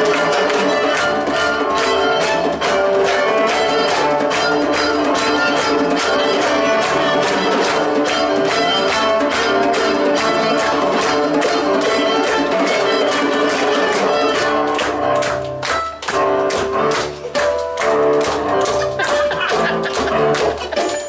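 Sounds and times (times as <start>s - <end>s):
fiddle: 0.0s - 15.0s
cello: 0.0s - 20.7s
acoustic guitar: 0.0s - 21.0s
djembe: 0.0s - 21.0s
drum kit beat: 0.0s - 21.0s.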